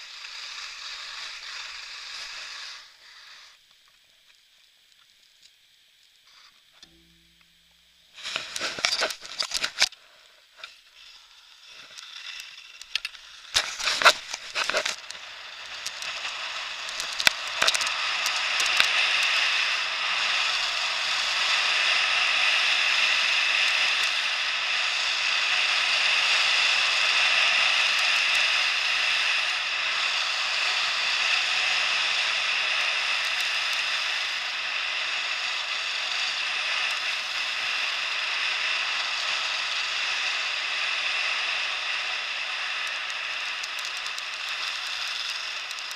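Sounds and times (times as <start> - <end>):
wind: 8.1 - 45.9
scrapes and crackles: 8.2 - 19.4
skis running over snow: 13.5 - 45.9.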